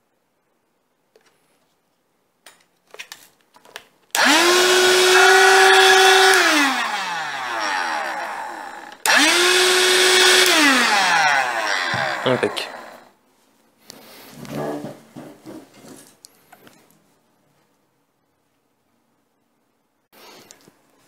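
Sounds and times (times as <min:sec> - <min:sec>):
handheld vacuum motor whining: 0:04.2 - 0:13.1.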